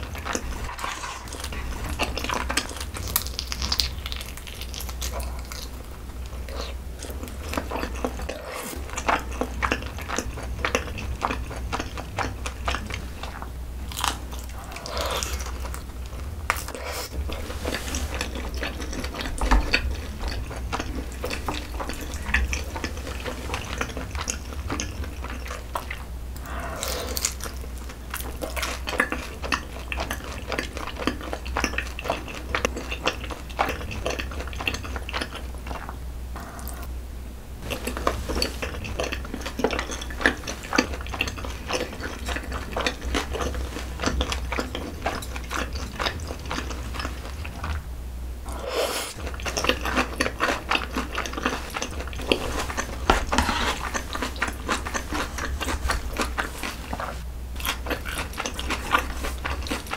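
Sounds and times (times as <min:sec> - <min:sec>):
noodle slurp: 0:00.0 - 0:02.7, 0:48.5 - 0:57.2
wet chewing: 0:00.0 - 0:36.9, 0:37.6 - 0:47.8, 0:48.5 - 0:59.9.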